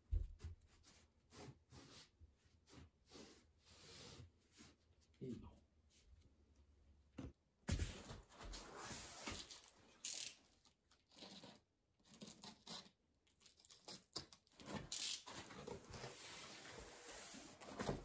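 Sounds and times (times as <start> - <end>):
cardboard scraping and rustling: 14.6 - 18.0.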